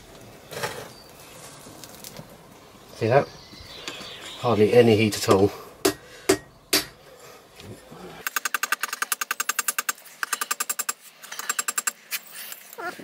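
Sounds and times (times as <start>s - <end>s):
hammer striking metal on anvil: 5.8s - 7.0s.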